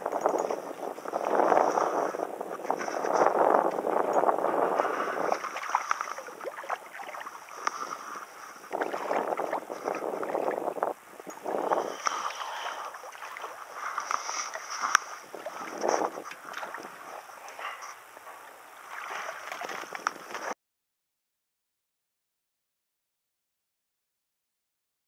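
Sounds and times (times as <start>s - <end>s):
fish splashing in water: 5.2s - 8.0s, 11.8s - 15.7s, 18.9s - 20.0s.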